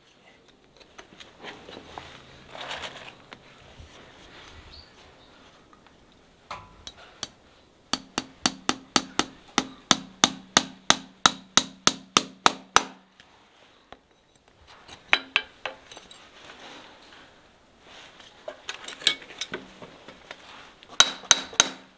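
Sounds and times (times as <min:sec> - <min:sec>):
hammer striking horseshoe nails: 0:06.5 - 0:13.0, 0:21.0 - 0:21.9.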